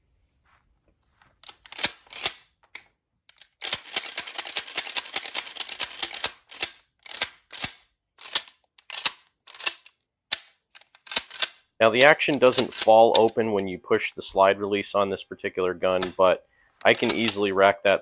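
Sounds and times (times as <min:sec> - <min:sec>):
shotgun pump action clacking: 0:03.4 - 0:13.4, 0:16.8 - 0:17.5.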